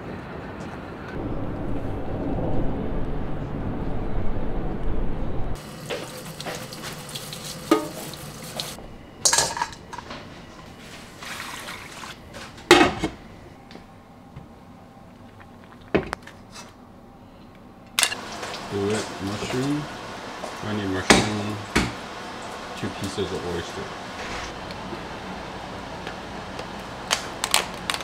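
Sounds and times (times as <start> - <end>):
low steady rumble: 1.2 - 5.6
tap water running into sink: 5.6 - 8.8.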